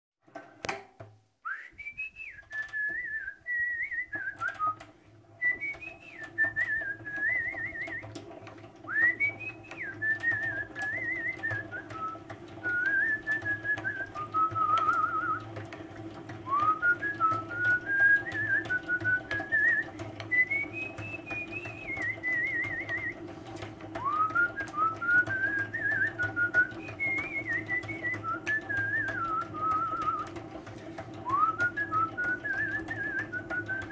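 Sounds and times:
honey extractor spinning: 0.2 - 33.9
person whistling a tune: 1.4 - 4.8, 5.4 - 8.1, 8.9 - 15.4, 16.5 - 23.2, 24.0 - 30.3, 31.2 - 33.9.

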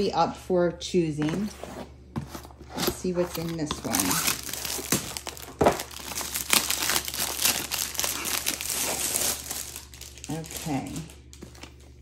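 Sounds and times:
cardboard box being handled: 1.2 - 6.4
plastic wrap crinkling: 2.3 - 12.0.

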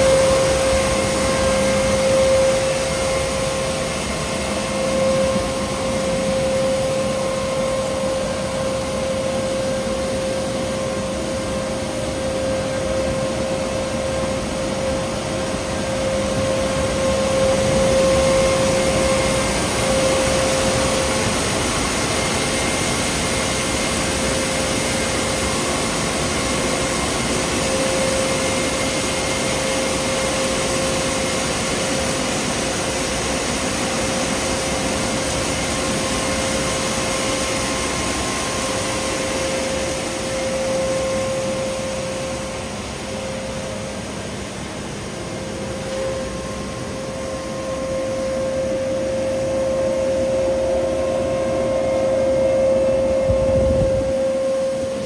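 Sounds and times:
steady whine: 0.0 - 55.0.

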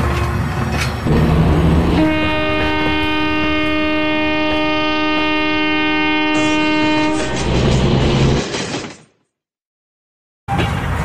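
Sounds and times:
locomotive horn blast: 0.0 - 8.3
rumble of running train: 0.0 - 8.9, 10.5 - 11.0.

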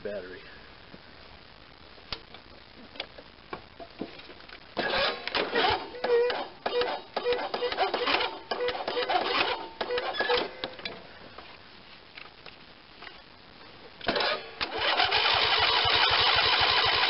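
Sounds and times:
electric starter cranking engine: 4.8 - 10.6, 14.1 - 17.0.

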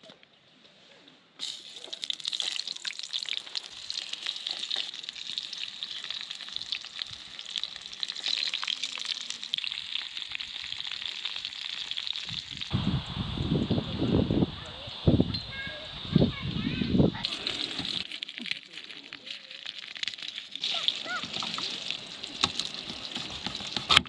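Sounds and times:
food sizzling in a pan: 1.4 - 12.7, 17.1 - 24.0.

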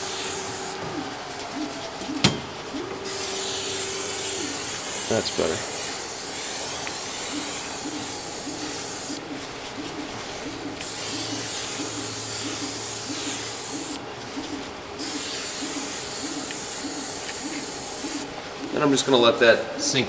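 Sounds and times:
aerosol spray hissing: 0.0 - 0.8, 3.0 - 9.2, 10.8 - 14.0, 15.0 - 18.3.

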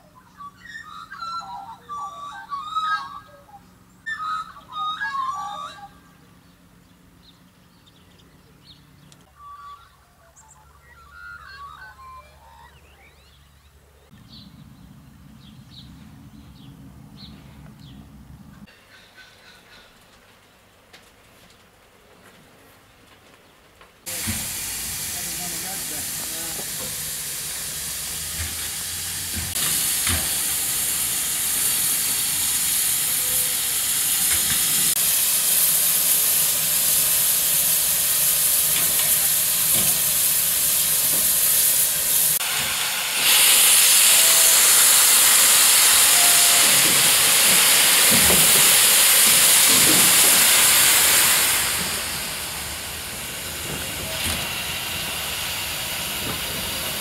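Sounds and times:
steam locomotive hissing steam: 0.0 - 5.9, 24.0 - 57.0.

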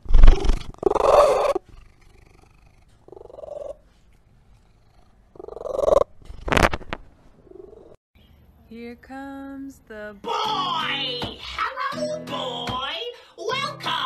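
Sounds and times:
cat rumbling calls: 0.0 - 6.8, 7.4 - 8.0.

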